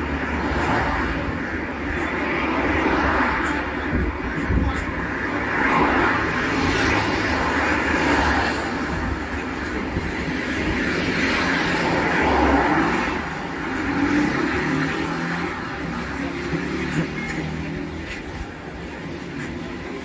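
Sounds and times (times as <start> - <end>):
cars driving past: 0.0 - 20.0.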